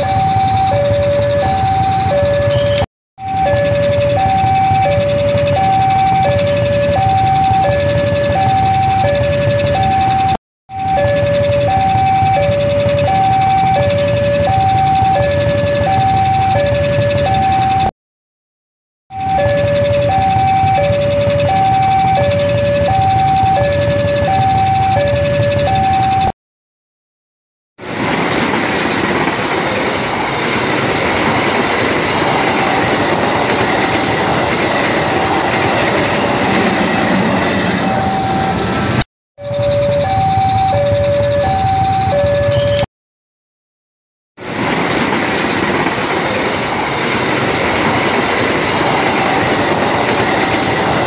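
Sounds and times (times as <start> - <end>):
level crossing two-tone alarm: 0.0 - 17.9, 19.1 - 26.4, 31.2 - 42.9, 47.3 - 51.0
passing train rumble: 0.0 - 17.9, 19.2 - 26.3, 27.8 - 42.8, 44.4 - 51.0
train wheels rushing on rails: 27.8 - 39.0, 44.4 - 51.0.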